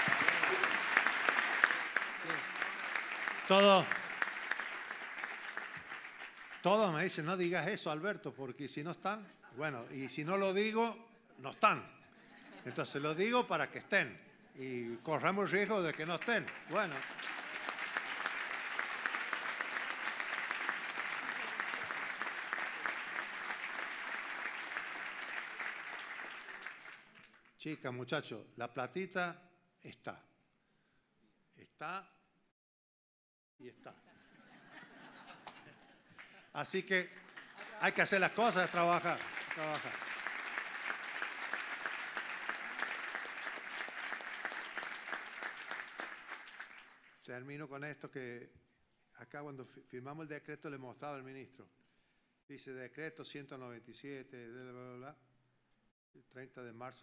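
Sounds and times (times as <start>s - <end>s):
audience applauding: 0.0s - 7.6s, 15.3s - 27.5s, 35.0s - 47.2s.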